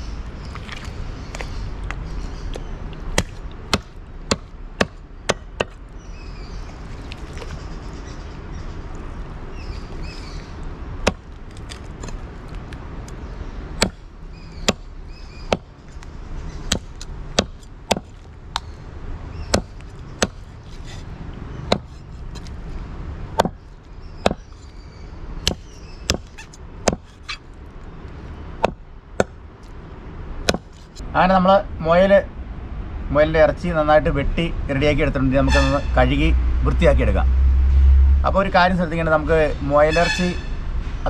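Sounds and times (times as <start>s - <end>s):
cleaver chopping on wood block: 3.1s - 5.8s, 11.0s - 12.2s, 13.8s - 14.0s, 14.6s - 14.9s, 15.5s - 15.7s, 16.7s - 18.7s, 19.5s - 20.5s, 21.7s - 22.5s, 23.3s - 23.6s, 24.2s - 24.5s, 25.4s - 27.2s, 28.6s - 29.4s, 30.4s - 30.8s.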